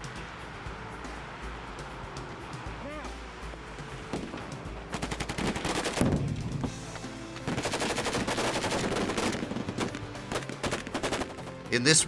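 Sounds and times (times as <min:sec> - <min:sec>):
background music: 0:00.0 - 0:12.0
automatic rifle fire: 0:07.5 - 0:11.5.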